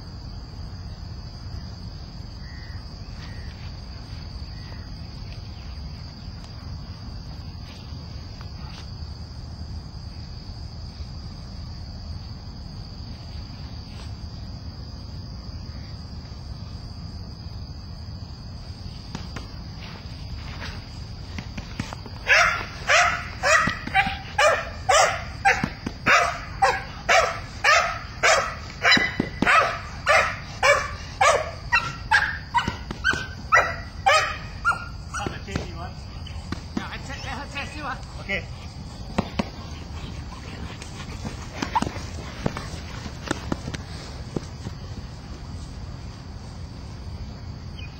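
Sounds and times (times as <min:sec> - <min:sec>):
dog barking: 0:22.3 - 0:35.3.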